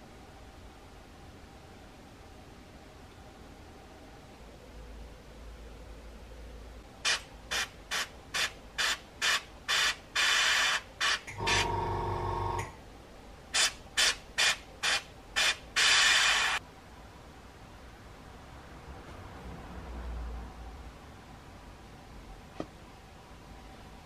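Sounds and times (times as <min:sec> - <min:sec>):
airbrush spraying puffs: 0:07.0 - 0:11.7, 0:13.6 - 0:16.6.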